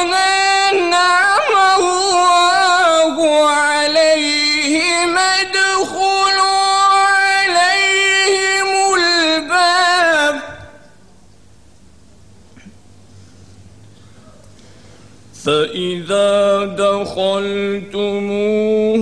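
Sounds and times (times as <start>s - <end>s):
man chanting recitation: 0.0s - 10.8s, 15.4s - 19.0s.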